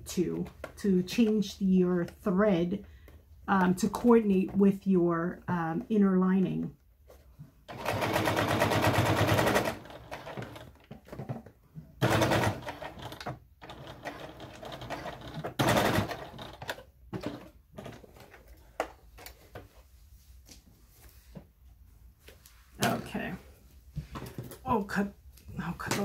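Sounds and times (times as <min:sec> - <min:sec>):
sewing machine stitching: 0:07.7 - 0:10.8, 0:12.0 - 0:17.9.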